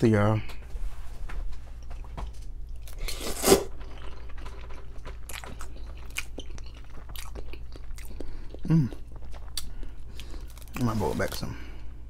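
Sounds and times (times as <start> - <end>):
chewing with mouth clicks: 1.8 - 10.8.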